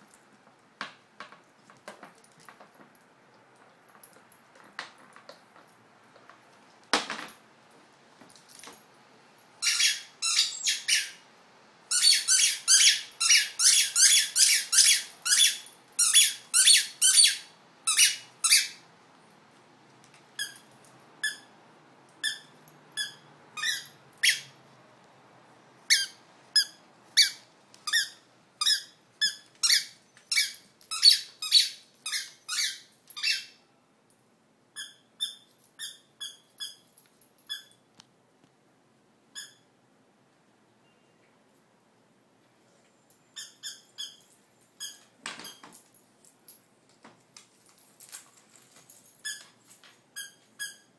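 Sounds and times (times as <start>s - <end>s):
squeaky toy squeaking: 9.6s - 11.2s, 11.9s - 18.8s, 20.4s - 21.5s, 22.2s - 24.6s, 25.9s - 33.6s, 34.8s - 36.8s, 37.5s - 37.8s, 39.4s - 39.7s, 43.3s - 45.6s, 50.2s - 50.9s.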